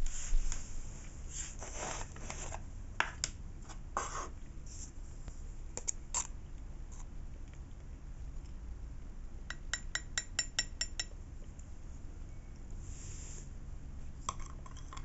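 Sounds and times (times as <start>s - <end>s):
jar lid scraping and rustling: 1.5s - 2.6s.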